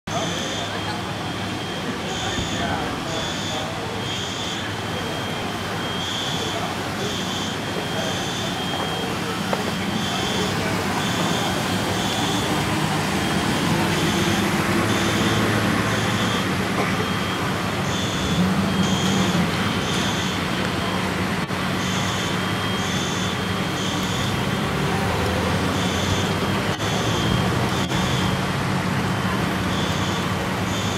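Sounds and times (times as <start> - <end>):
electronic alarm beeping: 0.1 - 24.6, 25.6 - 28.4, 29.7 - 30.9
rushing background noise: 0.1 - 30.9.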